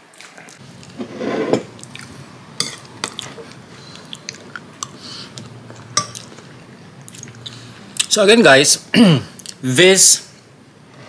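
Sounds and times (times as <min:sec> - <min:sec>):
person chewing food: 0:01.7 - 0:08.1.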